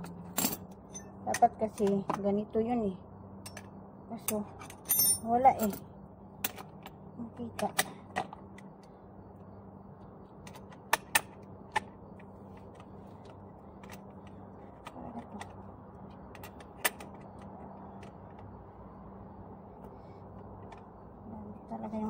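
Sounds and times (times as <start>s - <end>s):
wrench clinking on metal bolt: 4.8s - 5.8s.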